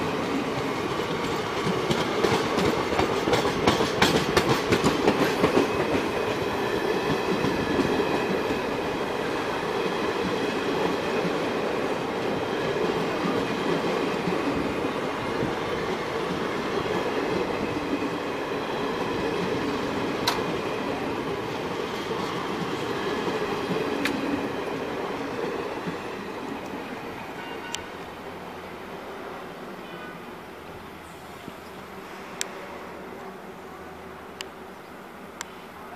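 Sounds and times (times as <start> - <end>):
train wheels rumbling on rails: 0.0 - 28.5.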